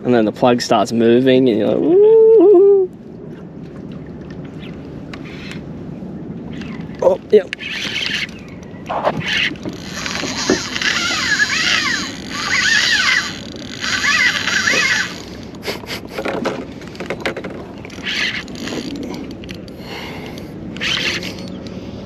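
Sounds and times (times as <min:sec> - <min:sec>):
fishing reel whirring: 0:07.6 - 0:08.5, 0:09.2 - 0:15.5, 0:18.0 - 0:19.6, 0:20.8 - 0:21.6.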